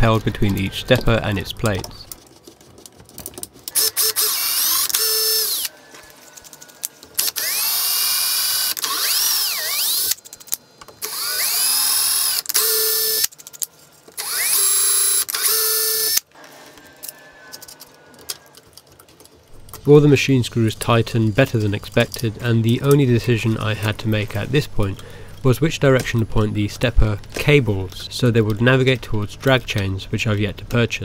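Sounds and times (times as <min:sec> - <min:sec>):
cordless drill motor whine: 0:03.8 - 0:05.8, 0:07.2 - 0:10.2, 0:11.0 - 0:13.3, 0:14.2 - 0:16.2.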